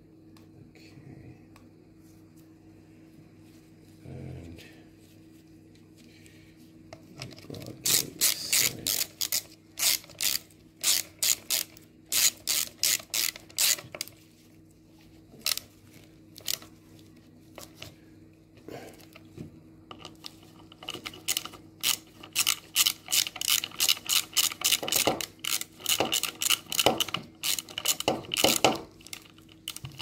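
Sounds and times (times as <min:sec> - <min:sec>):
hand ratchet clicking: 0:07.8 - 0:14.1, 0:19.9 - 0:30.0.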